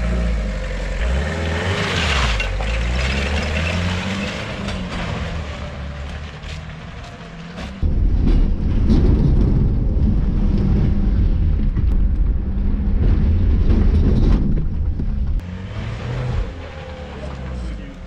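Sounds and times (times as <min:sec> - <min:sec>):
off-road vehicle engine under load: 0:00.0 - 0:18.0
vehicle knocks and rattles: 0:02.4 - 0:15.4.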